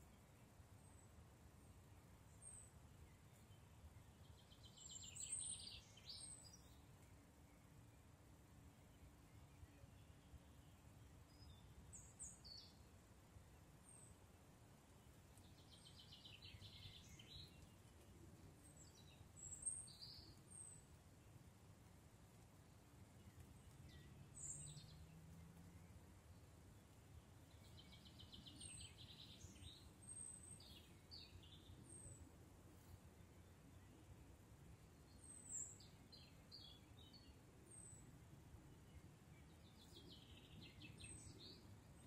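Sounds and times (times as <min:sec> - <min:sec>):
faint birdsong: 0:00.0 - 0:42.0.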